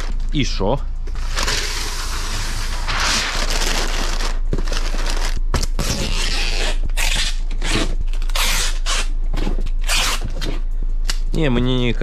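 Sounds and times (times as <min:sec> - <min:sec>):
packing paper crumpling: 0:02.9 - 0:06.3.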